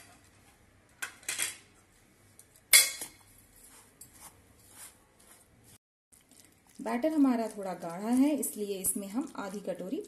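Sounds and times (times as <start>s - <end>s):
spoon scraping a steel bowl: 3.6s - 5.4s.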